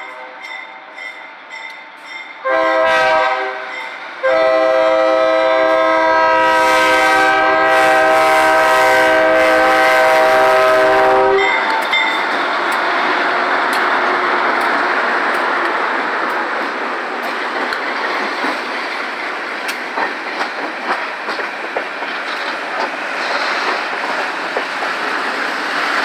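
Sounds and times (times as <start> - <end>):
train rumbling past: 0.0 - 26.0
locomotive air horn blasts: 2.4 - 11.8.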